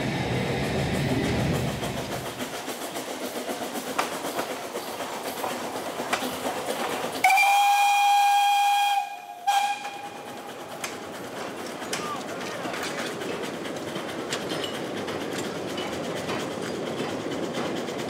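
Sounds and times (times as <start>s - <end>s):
train running along track: 0.0s - 18.0s
steam locomotive whistle: 7.2s - 10.4s.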